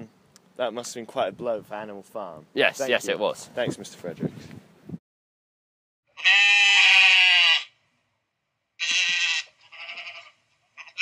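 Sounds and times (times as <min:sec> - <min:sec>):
sheep bleating: 0:06.2 - 0:07.8, 0:08.8 - 0:11.0.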